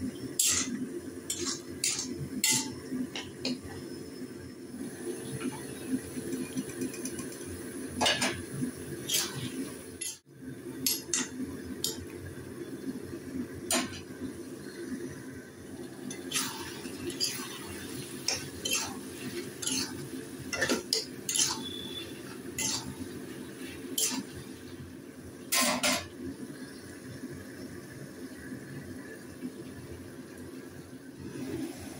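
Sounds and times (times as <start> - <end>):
spatula scraping a pan: 16.1 - 24.4.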